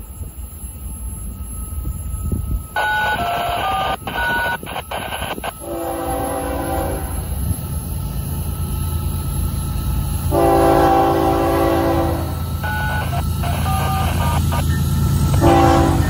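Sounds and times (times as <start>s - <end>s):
train horn: 5.6s - 7.3s, 10.3s - 13.0s, 15.4s - 16.0s.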